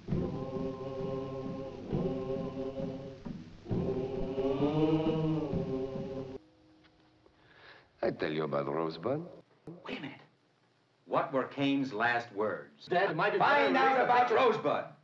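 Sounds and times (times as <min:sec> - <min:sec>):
group singing slow chant: 0:00.0 - 0:06.4.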